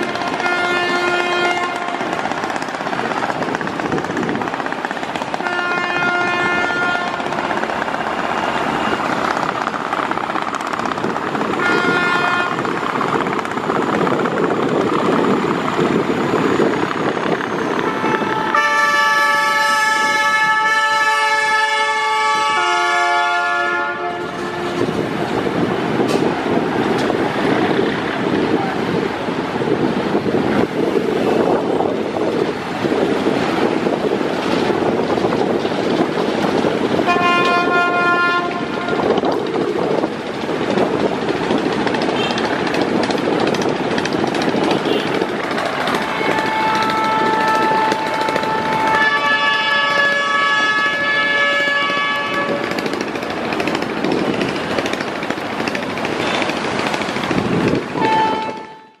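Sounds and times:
boat horn blast: 0.1s - 2.0s, 5.4s - 7.3s, 11.6s - 12.6s, 17.9s - 24.9s, 37.1s - 39.2s, 46.0s - 52.7s, 58.0s - 59.0s
wind on microphone: 1.0s - 8.1s, 9.0s - 18.6s, 24.0s - 59.0s
rattling boat engine: 52.1s - 58.6s.

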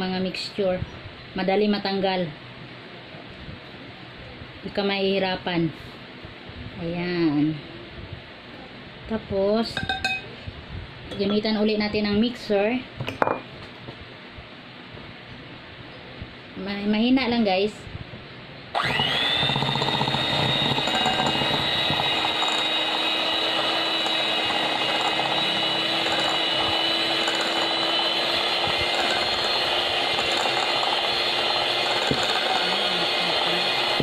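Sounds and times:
electric hand mixer whining: 18.7s - 34.0s.

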